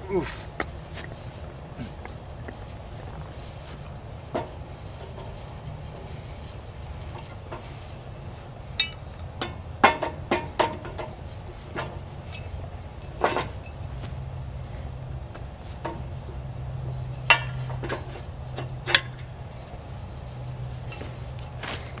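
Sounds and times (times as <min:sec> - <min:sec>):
low steady hum: 0:00.0 - 0:22.0
metal clanks and knocks: 0:08.8 - 0:14.0.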